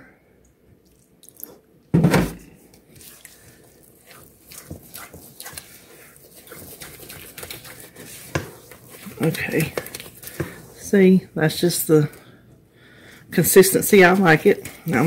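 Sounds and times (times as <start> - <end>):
spatula scraping batter in bowl: 2.9 - 11.1, 13.4 - 15.0.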